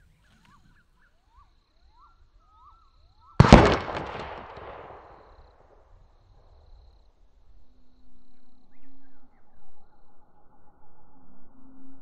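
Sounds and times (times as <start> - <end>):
air rifle shot echoing: 3.4 - 5.4.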